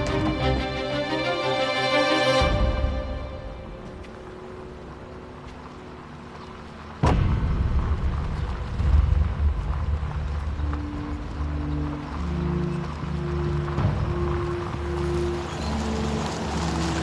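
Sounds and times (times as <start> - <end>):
deep boom with low rumble: 7.0 - 10.7.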